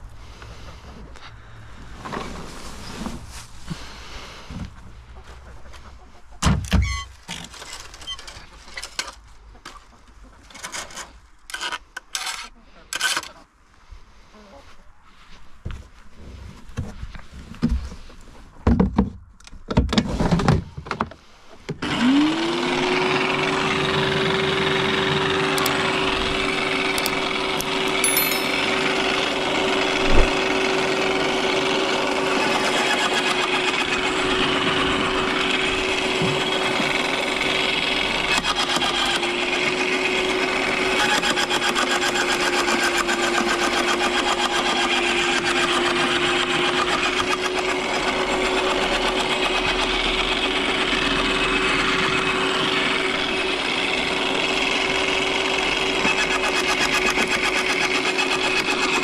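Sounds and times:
shredder motor humming: 0:21.8 - 0:59.0.

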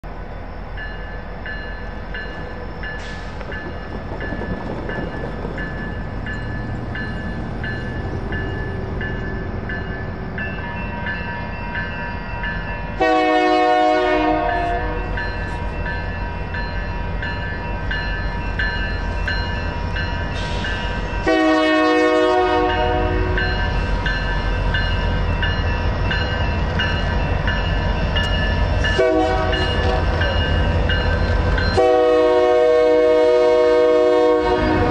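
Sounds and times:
low train rumble: 0:00.0 - 0:34.9
crossing bells ringing: 0:00.3 - 0:34.9
locomotive horn blasts: 0:13.0 - 0:15.1, 0:21.2 - 0:23.5, 0:29.0 - 0:30.3, 0:31.7 - 0:34.9.

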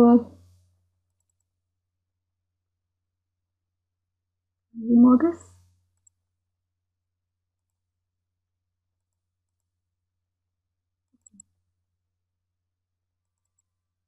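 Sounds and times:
computer mouse clicks: 0:01.1 - 0:01.5, 0:05.9 - 0:06.2, 0:11.1 - 0:11.6, 0:13.2 - 0:13.7.

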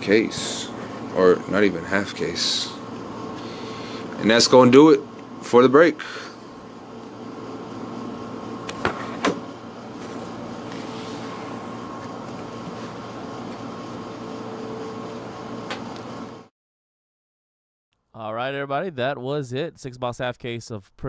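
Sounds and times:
faint steady whine: 0:00.0 - 0:16.5
room hum: 0:00.0 - 0:16.5.

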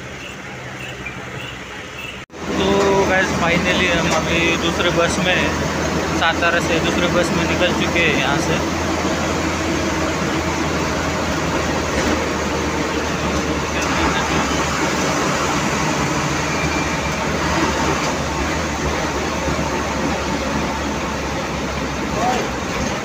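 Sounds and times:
bus engine droning: 0:00.0 - 0:23.0
road and body noise: 0:00.0 - 0:23.0.

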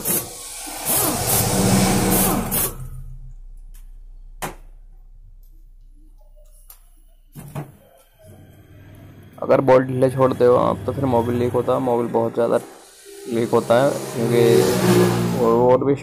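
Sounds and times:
electric driver whirring: 0:00.0 - 0:02.8.

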